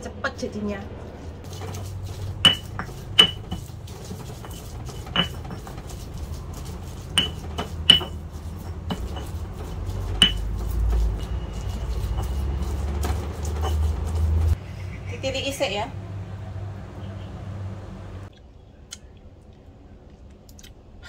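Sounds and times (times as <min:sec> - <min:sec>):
low rumble: 0:00.0 - 0:03.9
pestle grinding in stone mortar: 0:01.4 - 0:14.6
sharp knocks of stone on stone: 0:02.4 - 0:03.7, 0:07.1 - 0:09.4, 0:10.1 - 0:11.4.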